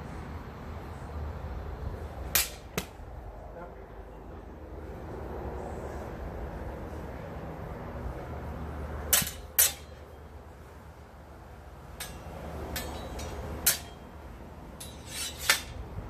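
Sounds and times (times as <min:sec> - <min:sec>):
sword blades clanking: 0:09.1 - 0:10.0, 0:12.0 - 0:14.1, 0:14.8 - 0:15.8
blade sliding on blade: 0:14.8 - 0:15.8.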